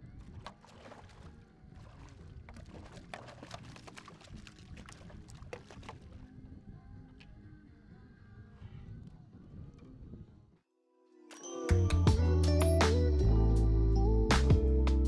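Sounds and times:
water splashing along kayak hull: 0.0s - 6.4s
wind rumble on microphone: 0.0s - 10.6s
sharp splashy crackles: 0.2s - 6.2s.

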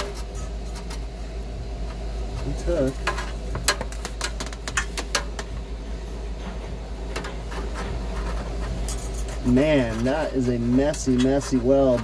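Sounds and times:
mechanical hum: 0.0s - 12.0s
clicks and crackles: 2.4s - 5.5s.

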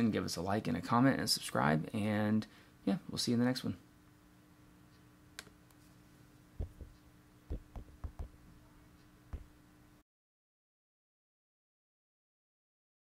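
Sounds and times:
faint room hum: 0.0s - 10.0s
soft clicks and knocks: 6.6s - 8.4s.

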